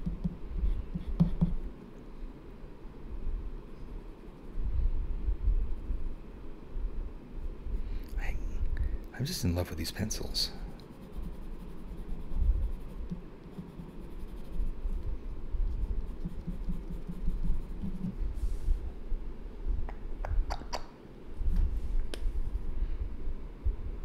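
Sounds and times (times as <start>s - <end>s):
hand and paper rubbing on desk: 10.9s - 15.0s, 15.7s - 18.8s
pencil scratching on paper: 10.9s - 15.0s, 15.7s - 18.2s.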